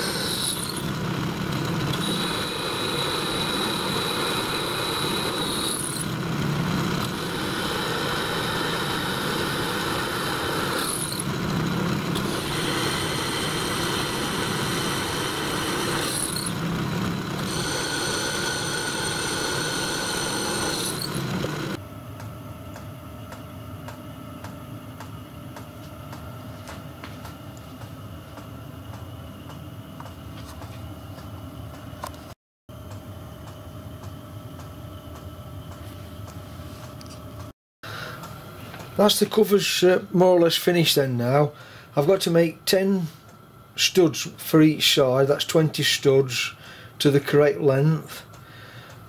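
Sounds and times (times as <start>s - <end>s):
pillar drill whining: 0.0s - 21.8s
steady hum: 0.0s - 49.0s.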